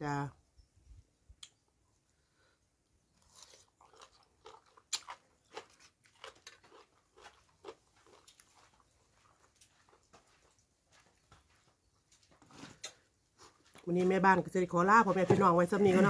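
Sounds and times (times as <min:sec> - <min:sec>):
crunchy chewing: 0:03.1 - 0:10.7.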